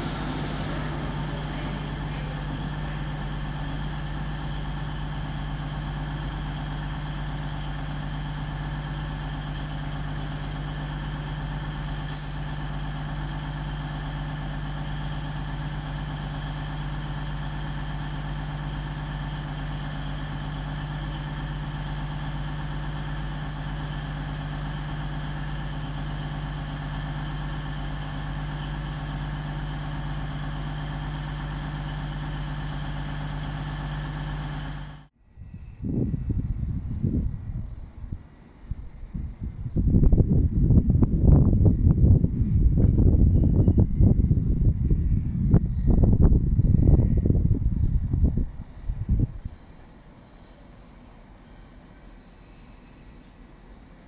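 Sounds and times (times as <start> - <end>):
train engine hum: 0.0 - 54.0.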